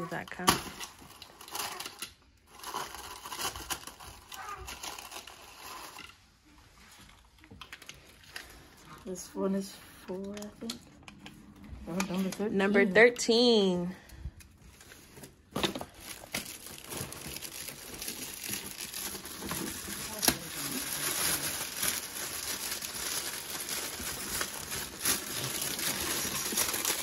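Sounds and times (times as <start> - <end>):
foil gift wrap crinkling: 0.0 - 9.2, 14.6 - 27.0.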